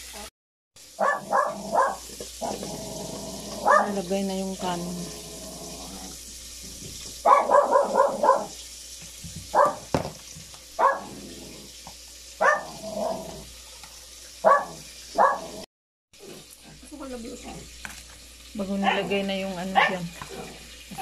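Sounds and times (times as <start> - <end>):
dog barking: 1.0 - 2.6, 3.6 - 4.0, 7.2 - 8.6, 9.5 - 9.9, 10.8 - 11.2, 12.4 - 13.4, 14.4 - 15.6, 18.8 - 20.5.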